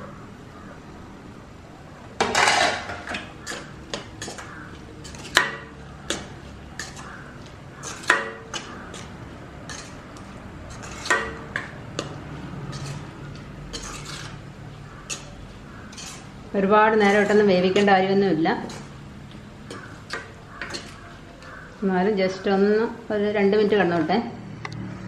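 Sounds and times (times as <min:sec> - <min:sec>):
fruit pieces tumbling into pot: 0:02.2 - 0:03.4
spatula scraping cooking pot: 0:02.3 - 0:21.7.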